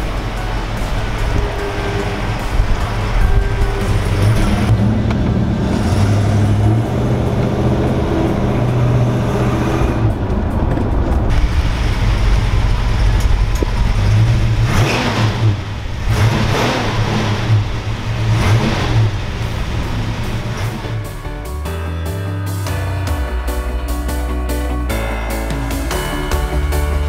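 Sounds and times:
car engine revving: 0.0 - 21.6.

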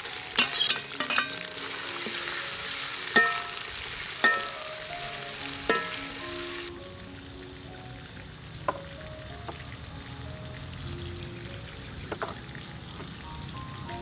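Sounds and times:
shrimp sizzling in hot oil: 0.0 - 14.0
metal spatula clanking on wok: 0.4 - 2.3, 3.2 - 3.6, 4.2 - 4.6, 5.7 - 6.1.

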